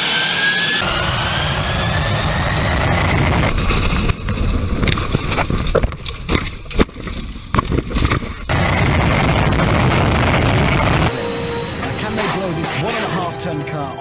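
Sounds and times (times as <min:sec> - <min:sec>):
jet engine exhaust blast: 0:00.0 - 0:04.4, 0:08.5 - 0:12.8.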